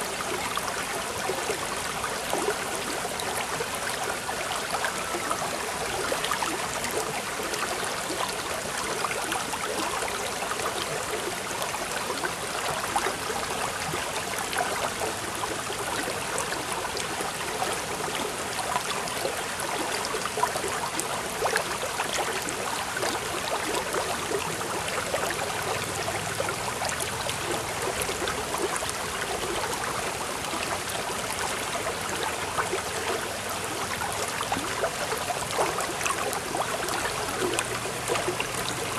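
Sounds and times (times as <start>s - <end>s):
running water babbling: 0.0s - 38.9s.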